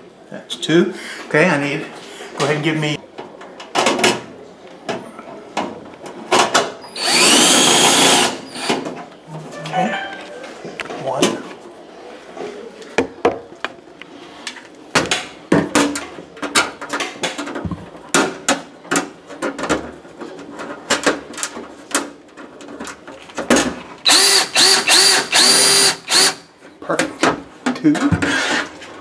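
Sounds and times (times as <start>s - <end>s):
power drill driving screws: 7.0s - 8.8s, 24.1s - 26.4s.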